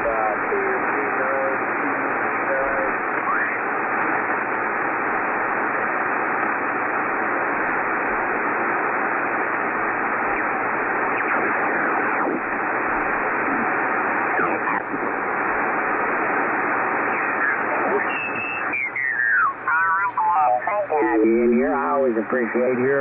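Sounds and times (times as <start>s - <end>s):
radio static and band noise: 0.0s - 23.0s
radio whistles sliding down: 17.0s - 19.0s.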